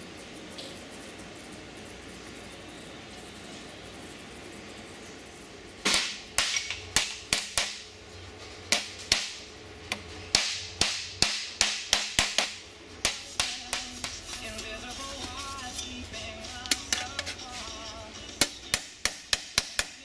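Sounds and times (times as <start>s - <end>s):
hammer striking steel panel: 10.3s - 14.2s, 18.4s - 20.0s.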